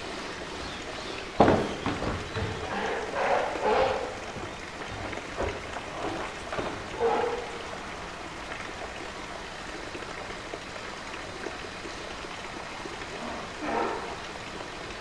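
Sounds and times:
running water: 0.0 - 15.0
loud knock: 1.4 - 2.7.

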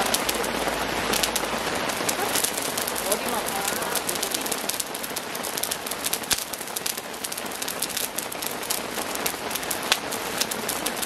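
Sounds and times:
steady rain pattering: 0.0 - 11.0.

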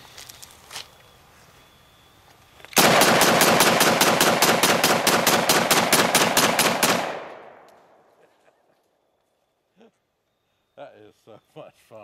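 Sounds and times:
rapid rifle shots: 2.8 - 7.4.

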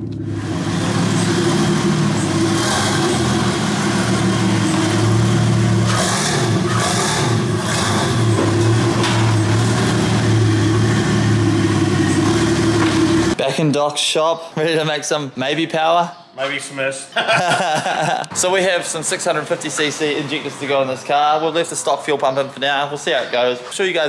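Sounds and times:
car engine idling: 0.0 - 13.4.

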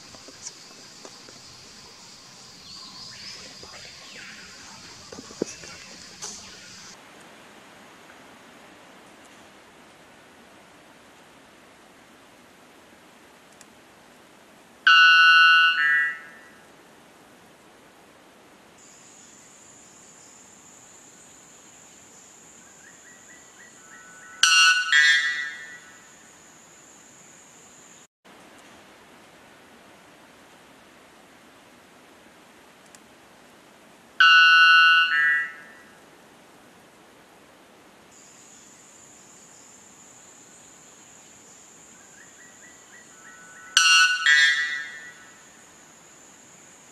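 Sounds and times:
bird giving ringing notes: 14.9 - 16.3, 24.0 - 26.0, 34.2 - 35.7, 43.2 - 45.4.

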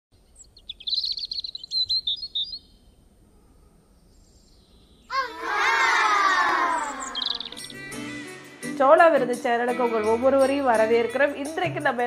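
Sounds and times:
birds chirping: 0.2 - 8.1.

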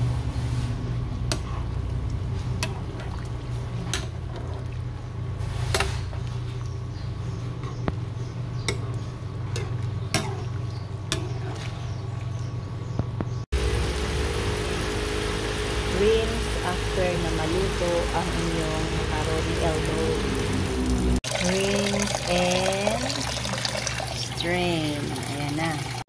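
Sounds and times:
steady low hum: 0.0 - 23.5
wet sloshing: 8.8 - 12.6.

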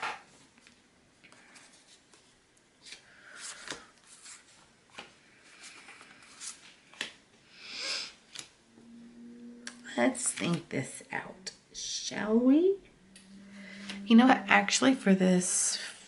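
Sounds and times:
paper rustling and sliding: 1.5 - 7.2.

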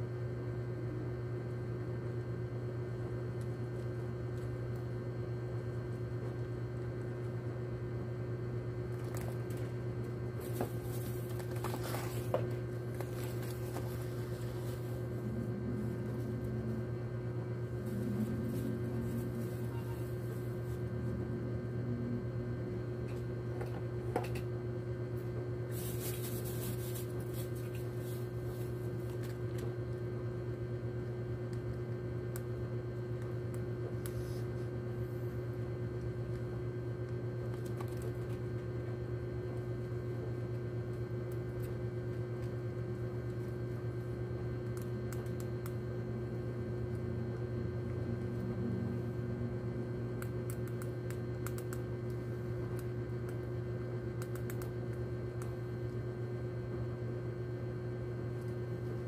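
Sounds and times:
low electrical hum: 0.0 - 59.0.

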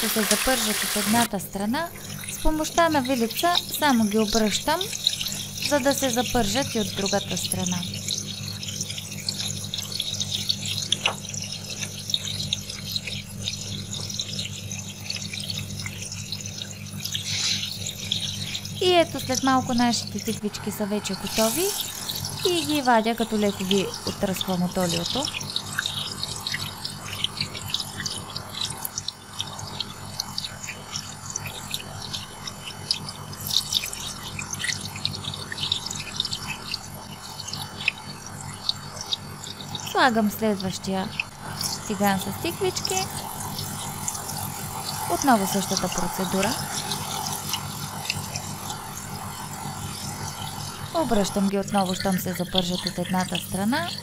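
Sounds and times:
low steady hum: 0.0 - 54.0
vegetables sizzling in hot oil: 0.0 - 54.0.

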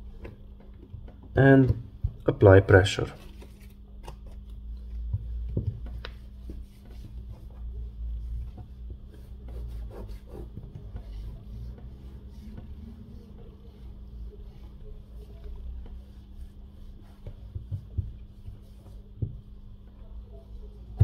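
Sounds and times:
cloth wiping phone glass: 4.8 - 21.0.

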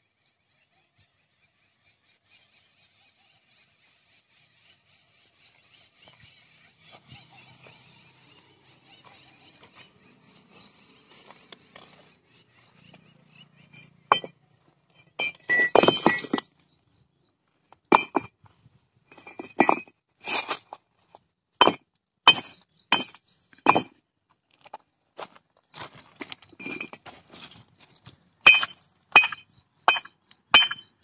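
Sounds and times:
clay bricks clinking together: 13.7 - 14.4, 15.0 - 16.6, 17.8 - 18.3, 19.1 - 20.6, 21.6 - 24.0, 26.2 - 27.4, 28.4 - 31.0.

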